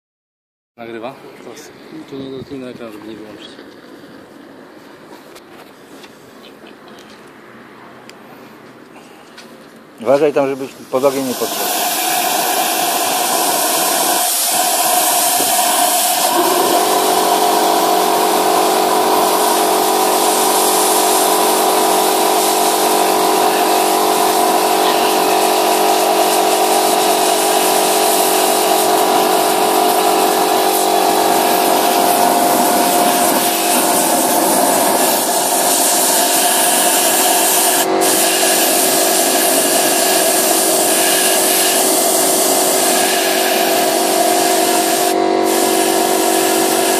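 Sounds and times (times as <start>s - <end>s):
steady multi-tone hum: 3.2s - 46.9s
gas torch flame rushing: 10.9s - 46.9s.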